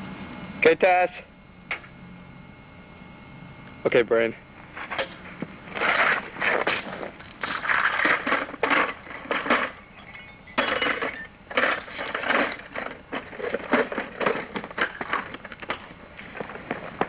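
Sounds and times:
metal tools clinking in a toolbox: 7.4 - 15.3.

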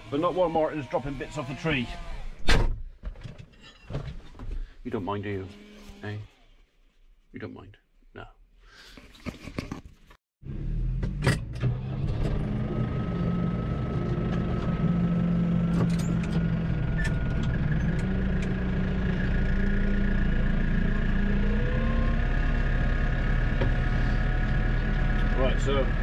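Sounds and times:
tractor diesel engine running: 12.0 - 26.0.

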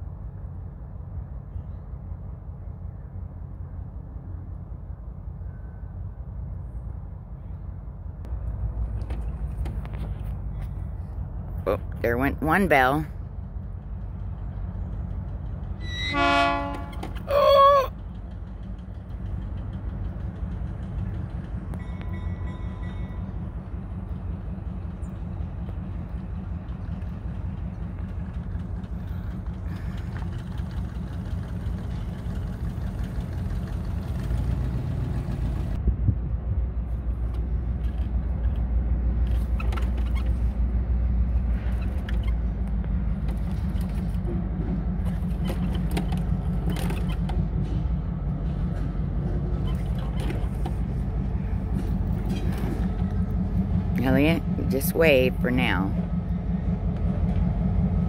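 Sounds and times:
diesel locomotive engine rumbling: 0.0 - 58.0
locomotive horn toot: 15.8 - 17.8.

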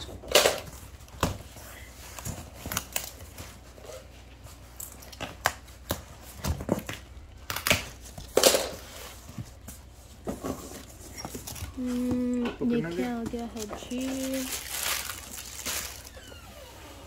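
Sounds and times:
packaging crinkling and tearing: 13.4 - 16.3.

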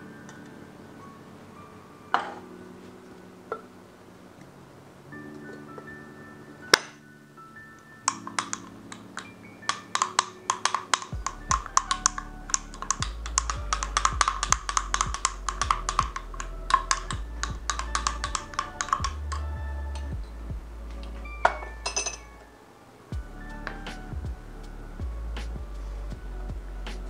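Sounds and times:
background music: 0.0 - 27.0
spoon clinking against glass: 21.4 - 22.4.

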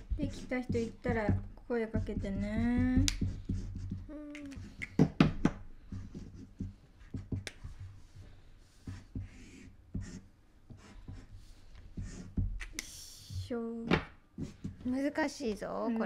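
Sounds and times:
marker pens scratching on paper: 0.0 - 13.5, 14.4 - 15.1
pens tapping on tabletop: 0.7 - 7.8.

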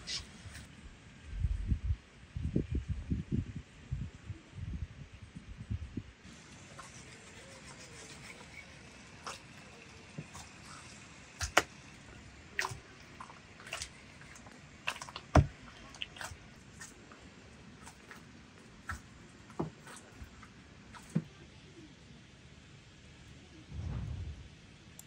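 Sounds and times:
hands kneading dough: 6.3 - 21.4.

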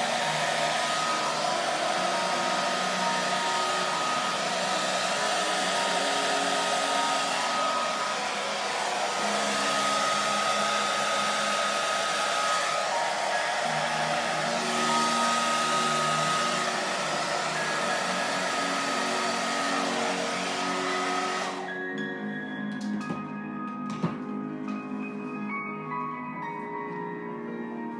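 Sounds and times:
hair dryer blowing: 0.0 - 21.9.

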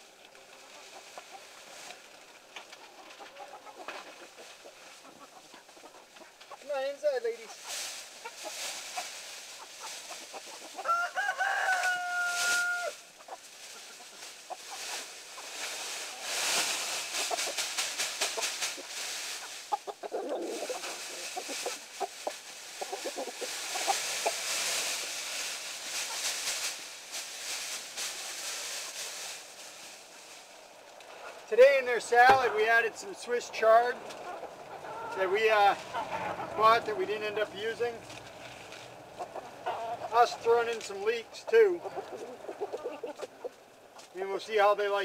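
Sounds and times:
chickens clucking: 0.1 - 45.0
rooster crowing: 10.8 - 13.1.

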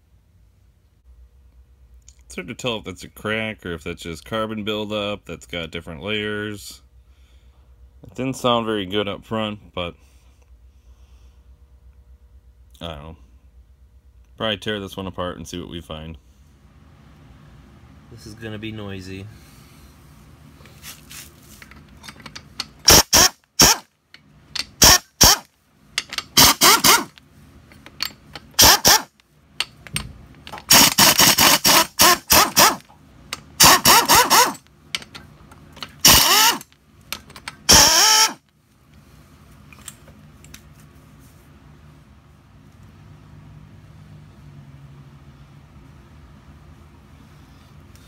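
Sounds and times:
impact driver whining: 22.8 - 23.9, 24.6 - 27.2, 28.4 - 29.2, 30.5 - 32.9, 33.6 - 34.7, 36.0 - 36.7, 37.6 - 38.4.

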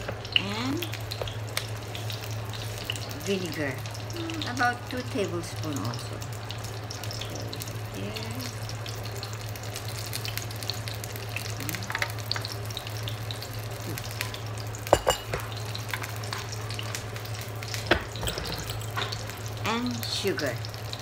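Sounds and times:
spring rolls sizzling in oil: 0.0 - 21.0.

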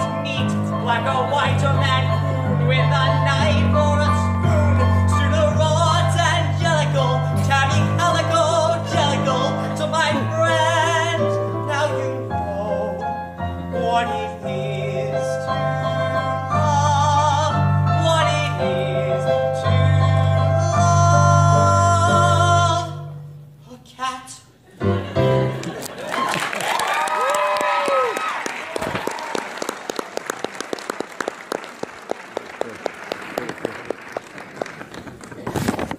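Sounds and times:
piano accompaniment: 0.0 - 23.6, 24.8 - 26.0
man singing with vibrato: 0.0 - 24.5.

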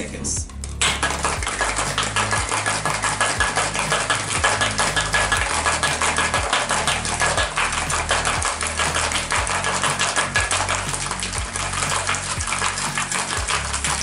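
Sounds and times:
ice rattling in cocktail shaker: 0.5 - 14.0.

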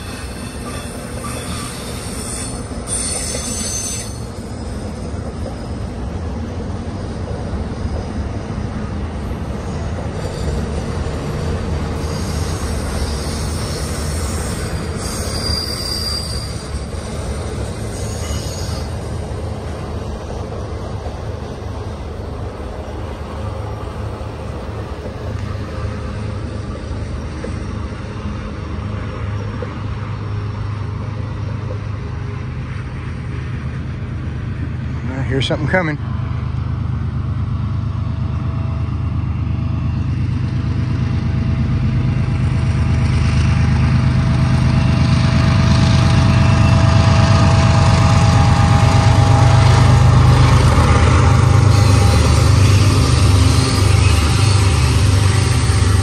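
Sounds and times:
high-pitched wheel squeal: 0.0 - 4.8, 12.0 - 19.1, 51.6 - 56.0
train wheels rumbling on rail: 0.0 - 56.0.

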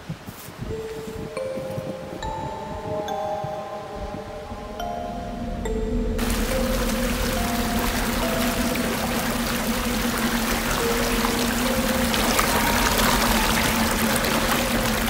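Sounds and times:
water rushing over a cascade: 6.2 - 15.0.

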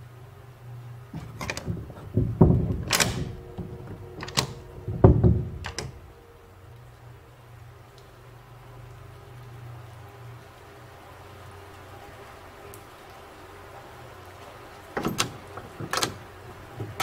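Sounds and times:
door handle rattling: 1.1 - 6.1, 15.0 - 17.0
door thudding against frame: 1.2 - 6.0
latch clicks: 1.2 - 6.1, 15.0 - 17.0.

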